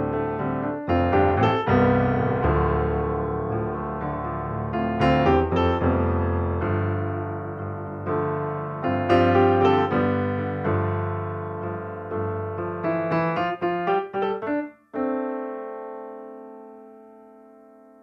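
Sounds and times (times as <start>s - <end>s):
slow solo piano: 0.0s - 18.0s.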